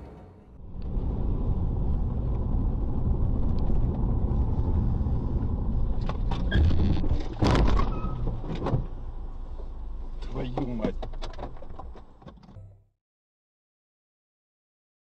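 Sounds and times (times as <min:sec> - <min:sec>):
car interior rumble: 0:00.0 - 0:12.7
car crash: 0:06.0 - 0:09.0.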